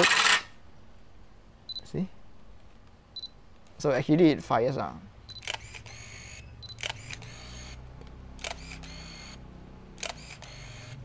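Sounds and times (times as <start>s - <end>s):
camera shutter click: 0.0s - 0.5s, 5.4s - 7.8s, 8.4s - 9.4s, 10.0s - 11.0s
film winding motor whir: 0.0s - 0.5s, 5.4s - 9.4s, 10.0s - 11.0s.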